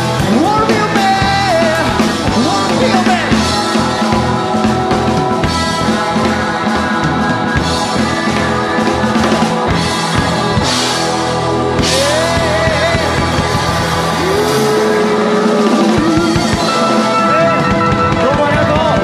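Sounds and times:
live rock band playing: 0:00.0 - 0:19.0.

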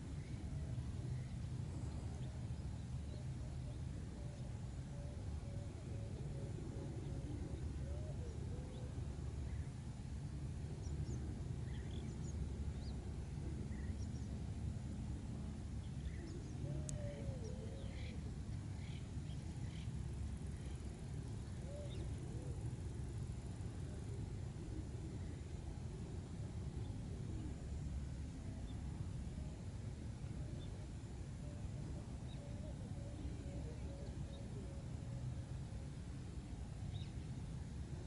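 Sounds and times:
low background rumble: 0:00.0 - 0:38.0
faint bird calls: 0:03.0 - 0:09.8, 0:15.4 - 0:29.6, 0:30.2 - 0:35.8.

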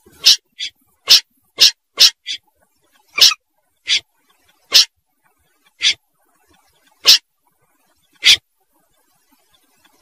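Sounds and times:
snipe short harsh call: 0:00.1 - 0:02.4, 0:03.2 - 0:04.0, 0:05.8 - 0:06.0, 0:07.0 - 0:07.2, 0:08.2 - 0:08.4.

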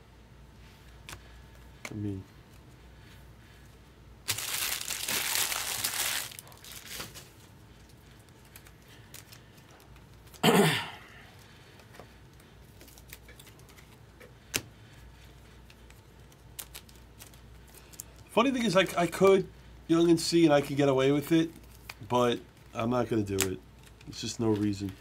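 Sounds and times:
foil wrapper crinkling and tearing: 0:04.2 - 0:07.4, 0:16.2 - 0:18.3
person coughing: 0:10.4 - 0:11.2.

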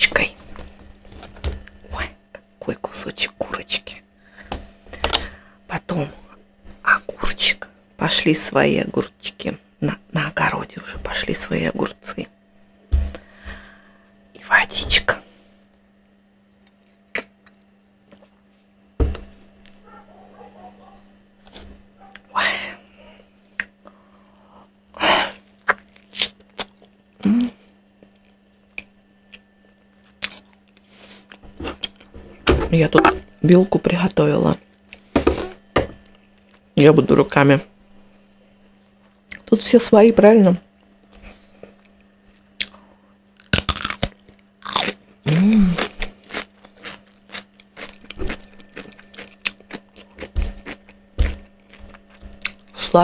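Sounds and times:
open-mouth chewing crackles and smacks: 0:16.6 - 0:18.4, 0:23.5 - 0:24.0, 0:24.6 - 0:27.2, 0:28.0 - 0:32.1, 0:40.8 - 0:42.8, 0:45.8 - 0:52.8
crunchy bite of fried chicken: 0:43.4 - 0:45.0
cucumber bitten with a crunch: 0:43.4 - 0:52.8.

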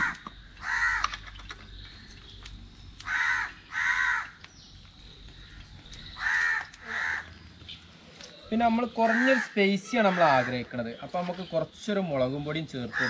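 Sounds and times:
crow cawing: 0:00.0 - 0:01.2, 0:03.0 - 0:04.4, 0:05.4 - 0:07.4, 0:09.0 - 0:10.7.

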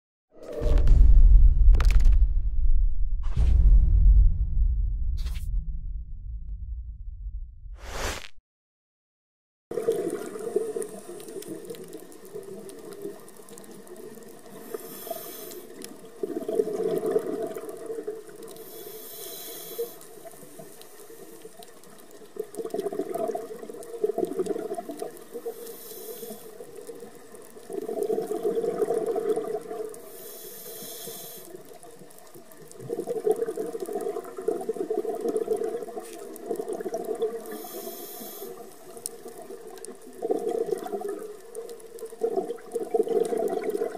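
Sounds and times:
rush of exhaled bubbles: 0:09.7 - 0:11.8, 0:16.2 - 0:18.4, 0:22.6 - 0:25.6, 0:27.6 - 0:30.0, 0:32.8 - 0:38.6, 0:39.3 - 0:41.4, 0:42.0 - 0:43.9
regulator inhale hiss: 0:14.6 - 0:15.8, 0:18.6 - 0:21.5, 0:25.5 - 0:26.6, 0:30.0 - 0:31.6, 0:37.4 - 0:38.9.

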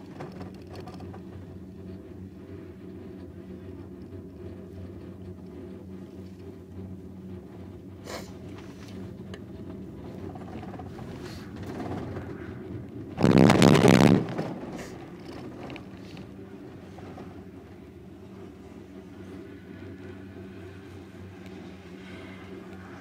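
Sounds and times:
haul rope humming: 0:00.0 - 0:23.0
cabin rumbling over rollers: 0:09.0 - 0:18.3.

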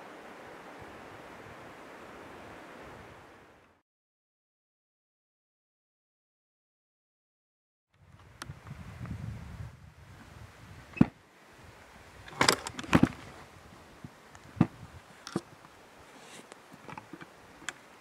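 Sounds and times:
wind rumble on microphone: 0:00.0 - 0:03.6, 0:08.0 - 0:15.8.

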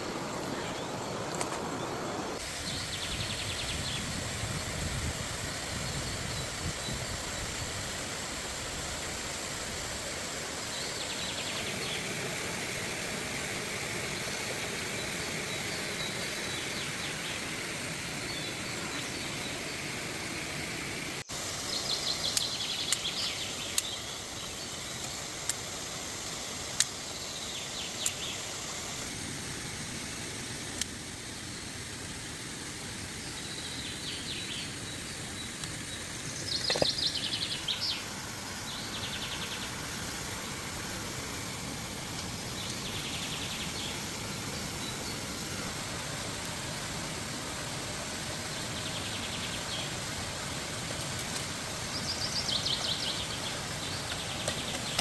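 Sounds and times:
waterfall and river rushing: 0:00.0 - 0:55.0.

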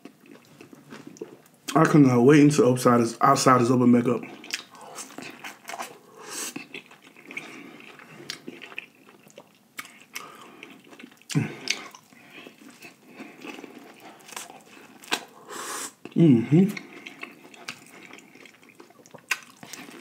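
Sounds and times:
chewing corn on the cob: 0:04.3 - 0:20.0.

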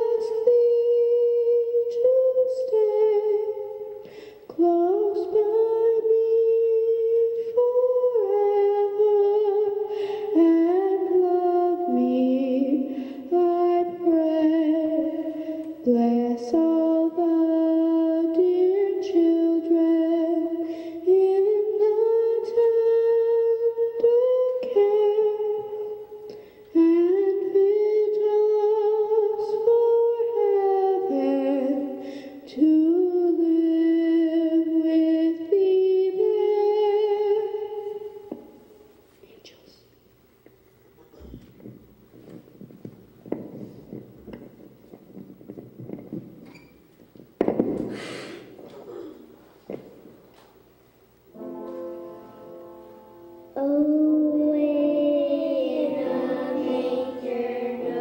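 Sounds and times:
person singing slow melody: 0:00.0 - 0:38.6, 0:51.3 - 0:58.0.

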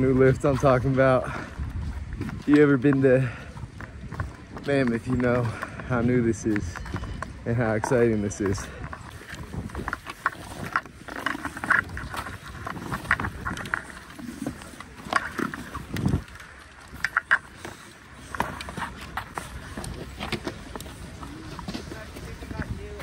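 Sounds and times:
skis scraping on snow: 0:07.6 - 0:23.0
ski pole tips crunching snow: 0:08.8 - 0:22.8.

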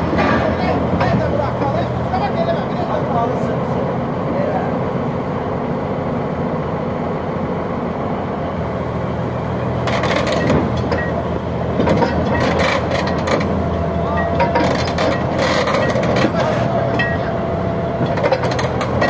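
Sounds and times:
metallic clanking and scraping: 0:00.0 - 0:01.8, 0:09.8 - 0:17.4, 0:18.0 - 0:19.0
bulldozer diesel engine running: 0:00.0 - 0:19.0.

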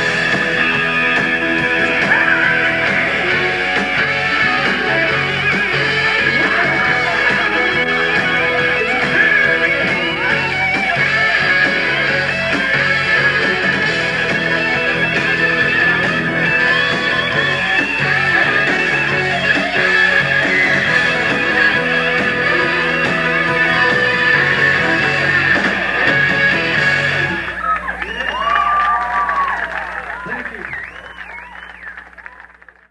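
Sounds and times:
rock band playing live: 0:00.0 - 0:27.6.

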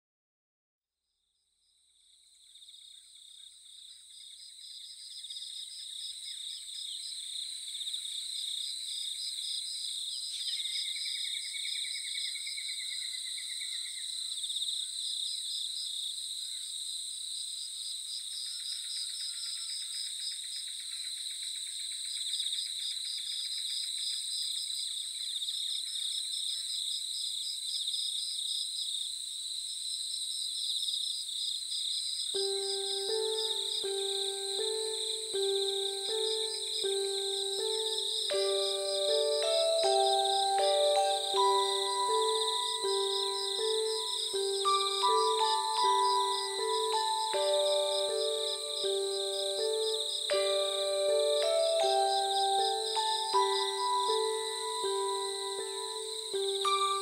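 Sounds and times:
insects trilling: 0:30.3 - 0:57.0
faint held music tones: 0:32.4 - 0:57.0.

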